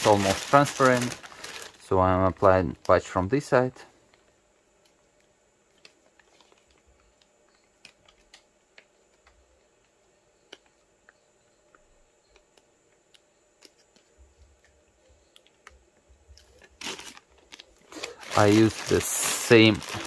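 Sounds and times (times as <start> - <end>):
fingers crinkling fabric patch: 0.0 - 1.8.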